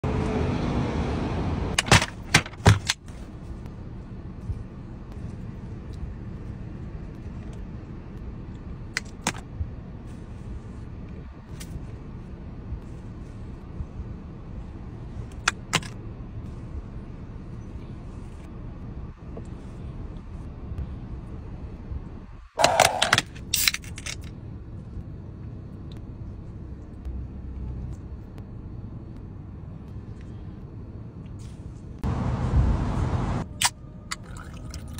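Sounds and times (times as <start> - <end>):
car cabin low rumble: 1.8 - 34.8.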